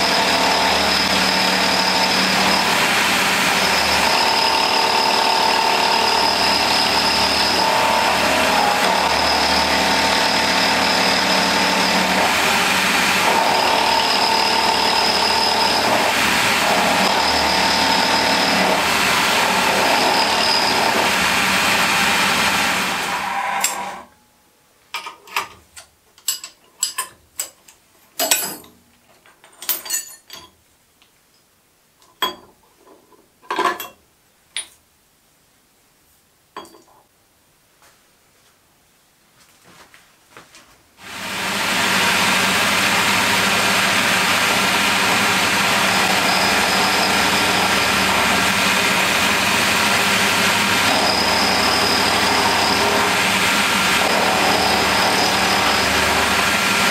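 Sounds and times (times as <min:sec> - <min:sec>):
milling machine cutting brass: 0:00.0 - 0:24.0, 0:41.1 - 0:56.9
light metallic clinks and knocks: 0:25.0 - 0:30.6.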